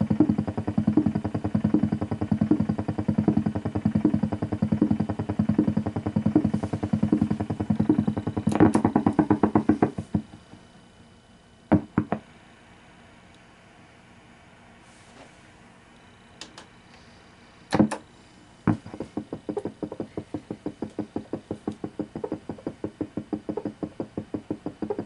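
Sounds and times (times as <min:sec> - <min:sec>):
radio interference clicking buzz: 0:00.0 - 0:10.6, 0:18.7 - 0:25.0.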